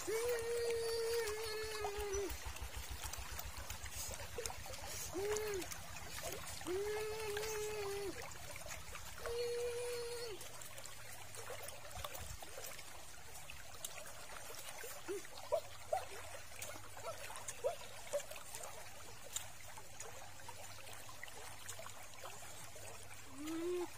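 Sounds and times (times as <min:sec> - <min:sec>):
stream trickling: 0:00.0 - 0:23.9.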